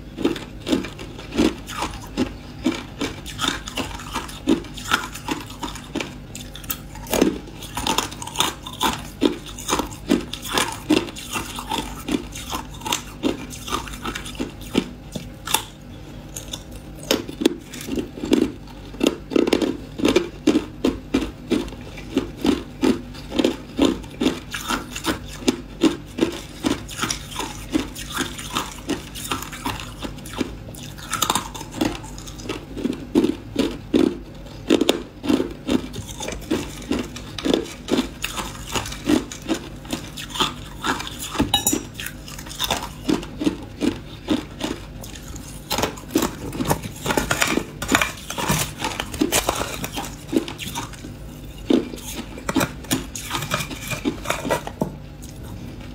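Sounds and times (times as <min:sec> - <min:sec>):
ice crunched between teeth: 0:42.0 - 0:53.9.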